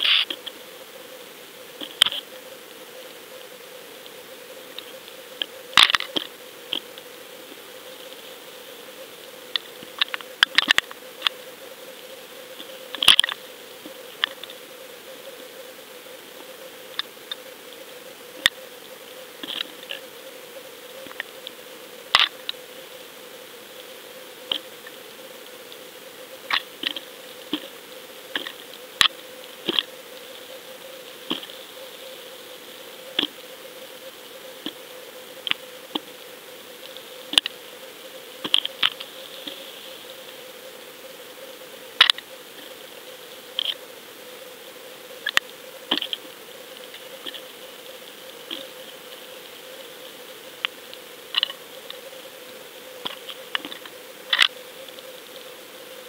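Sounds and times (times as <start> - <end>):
sharp underwater clicks: 1.8 - 2.3, 9.5 - 11.4, 12.6 - 13.4, 21.0 - 22.6, 26.5 - 27.7, 36.8 - 37.6, 38.4 - 39.6, 42.0 - 42.3, 45.2 - 46.2, 53.0 - 55.0.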